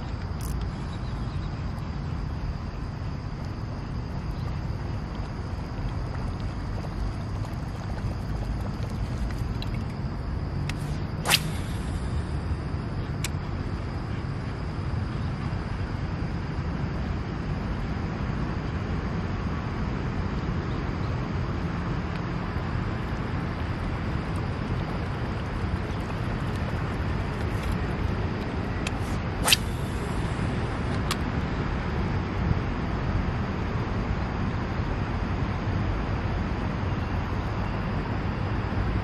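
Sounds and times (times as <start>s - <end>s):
sharp click: 10.6s - 12.0s
distant road traffic rumble: 18.8s - 39.0s.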